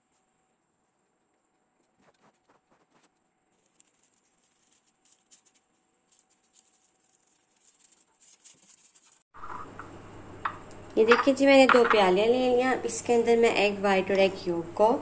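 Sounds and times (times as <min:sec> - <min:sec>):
parchment paper rustling: 0:01.8 - 0:09.3.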